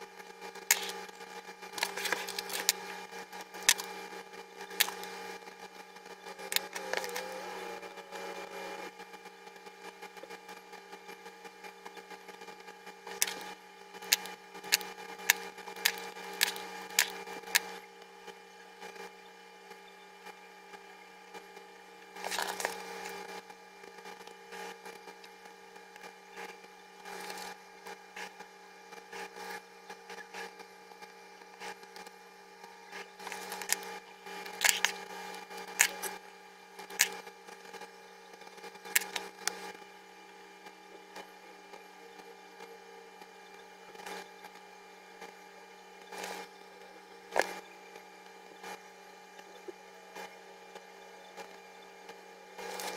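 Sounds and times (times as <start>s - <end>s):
steady hum: 0.0s - 52.9s
paper rustle: 22.2s - 22.9s.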